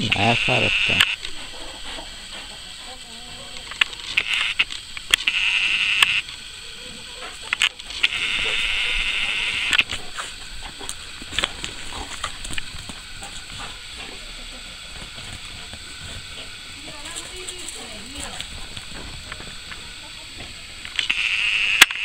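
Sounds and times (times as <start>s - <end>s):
movement on gravel: 7.1s - 21.2s.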